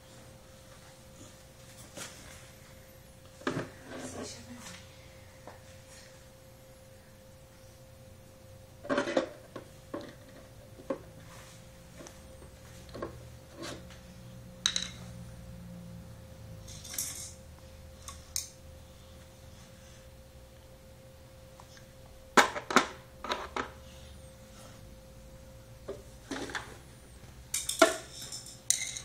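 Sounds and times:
faint steady hum: 0.0s - 29.0s
toy tools clattering on tiled floor: 16.7s - 17.4s, 27.5s - 29.0s.

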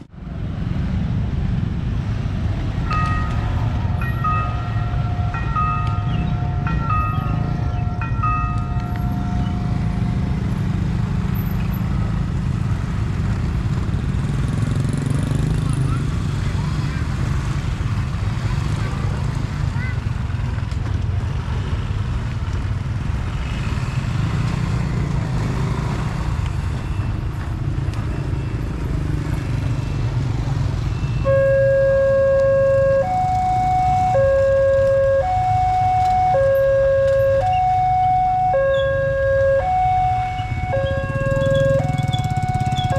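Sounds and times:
motorcycle engines rumbling: 0.0s - 42.9s
held electronic tone: 31.0s - 42.9s.

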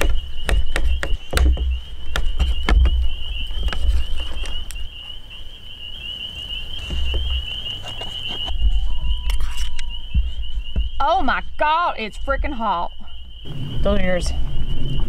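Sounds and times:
frogs trilling: 0.0s - 15.0s
dull low rumbles: 12.2s - 15.0s.

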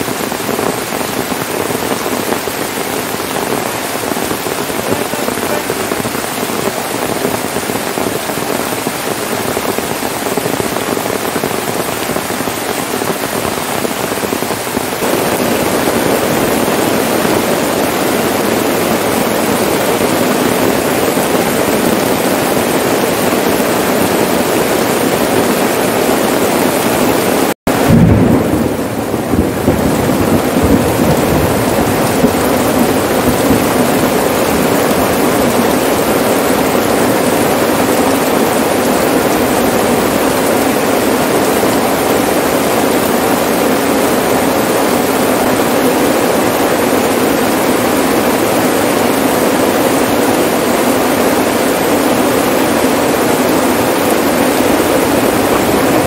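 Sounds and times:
heavy rain on a tarp: 0.0s - 56.0s.

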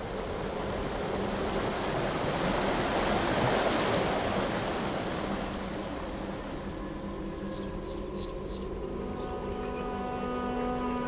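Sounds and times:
river water rushing over rapids: 0.0s - 8.0s.

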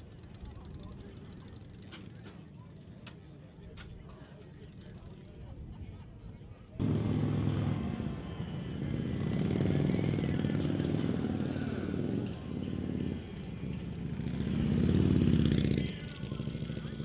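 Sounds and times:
motorcycle engines running: 6.8s - 17.0s.

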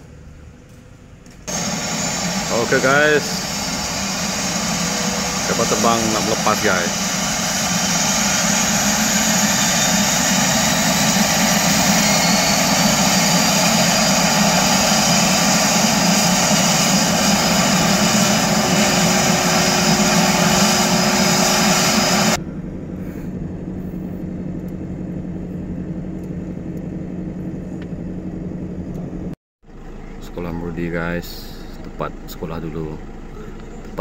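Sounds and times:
faint high turbine whine: 0.0s - 34.0s
turboprop engines running: 0.0s - 34.0s
quiet steady rumble: 22.4s - 34.0s.

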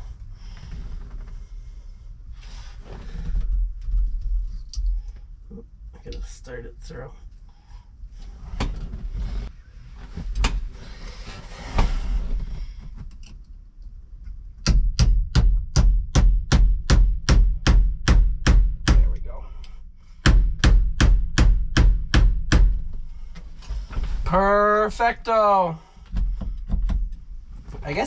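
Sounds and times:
hammer striking a pin: 14.6s - 19.0s.

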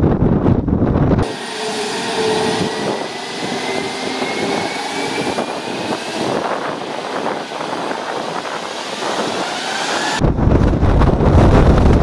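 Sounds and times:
jet blast rumbling on microphone: 0.0s - 12.0s
jet engines hissing and whining: 1.2s - 10.6s.

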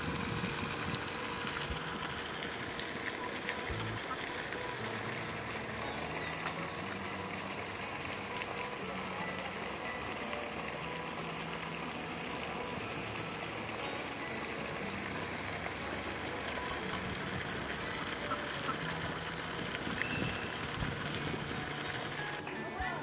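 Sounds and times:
distant traffic hum: 0.0s - 22.4s.

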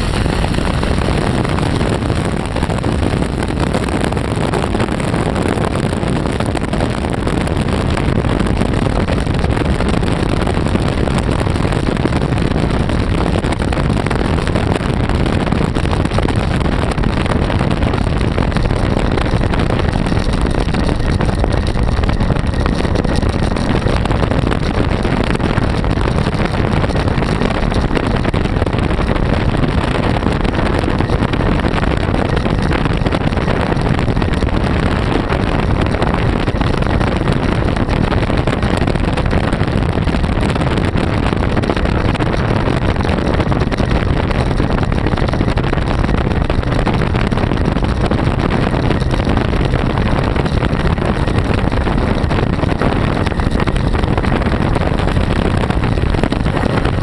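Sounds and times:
engine running at cruise: 0.0s - 57.0s
wind buffeting microphone: 0.0s - 57.0s.

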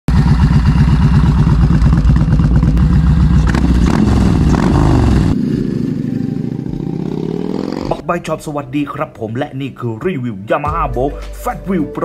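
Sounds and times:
motorcycle engine idling: 0.1s - 7.7s
motorcycle engine revving: 0.1s - 8.0s.

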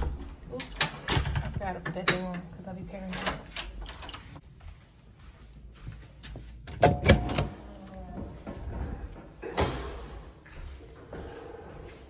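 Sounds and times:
metal door latch clacking: 0.0s - 2.4s.

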